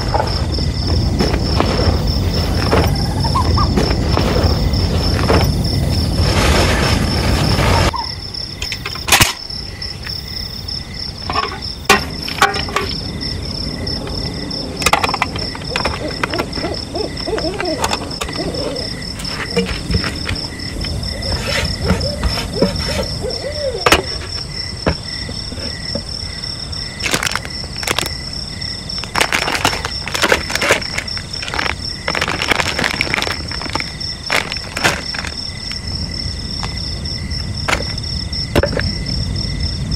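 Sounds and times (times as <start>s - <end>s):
pulsing insect trill: 0.0s - 39.9s
wavering animal calls: 2.9s - 3.8s, 15.5s - 19.2s, 21.1s - 24.3s.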